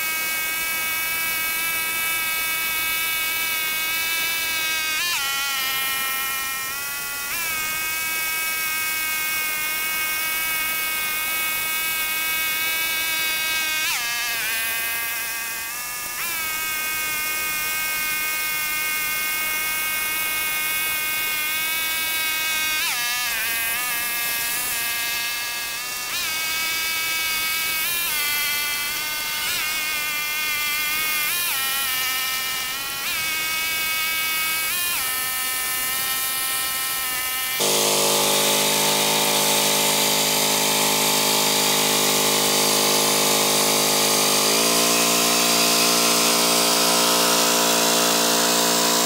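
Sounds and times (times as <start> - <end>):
rotary tiller through soil: 29.8 - 49.0
tractor engine running hard: 37.6 - 49.0.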